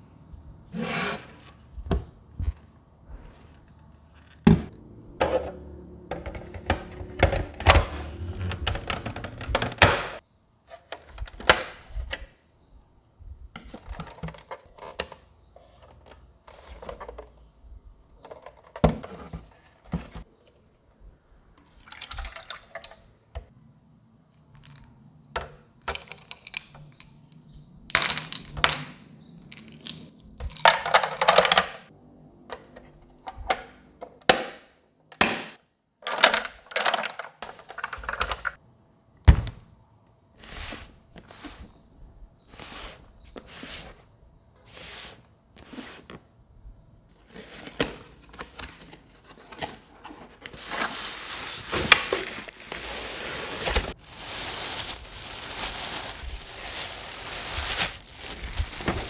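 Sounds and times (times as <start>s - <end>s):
plastic parts clicking and knocking: 6.1s - 12.2s, 13.5s - 17.4s, 18.2s - 20.2s, 24.6s - 27.1s, 29.5s - 31.9s, 35.1s - 38.6s.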